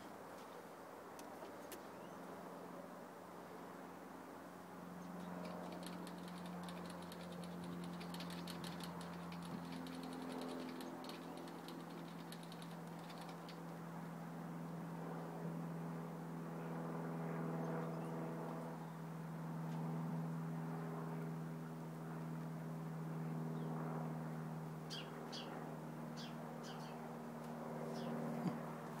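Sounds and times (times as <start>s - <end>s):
low machine hum: 5.0s - 13.9s.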